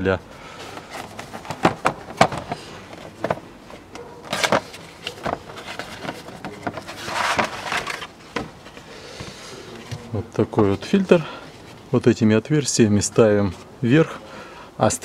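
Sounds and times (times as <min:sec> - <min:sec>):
cardboard rustling scrape: 0:00.6 - 0:11.8
cardboard box knocks and clicks: 0:01.0 - 0:02.6.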